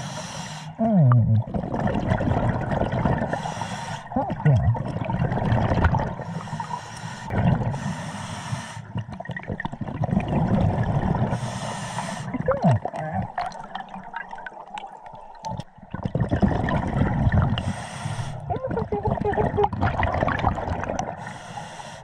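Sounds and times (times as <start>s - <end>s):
diver breathing through regulator: 0.0s - 0.8s, 3.2s - 4.1s, 6.2s - 9.0s, 11.2s - 12.4s, 17.5s - 18.5s, 21.1s - 22.0s
bubbling exhalations: 0.8s - 6.4s, 7.3s - 7.8s, 8.9s - 11.6s, 12.2s - 14.5s, 15.5s - 21.4s.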